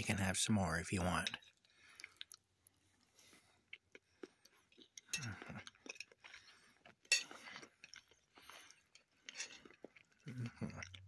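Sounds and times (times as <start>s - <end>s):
cutlery and dishes clinking: 7.0s - 8.0s, 9.0s - 9.8s.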